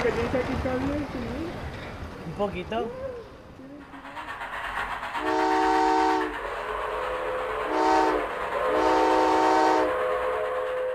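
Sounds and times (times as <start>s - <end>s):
running train rushing: 0.0s - 10.9s
multi-chime train whistle: 5.2s - 6.3s, 7.0s - 10.9s.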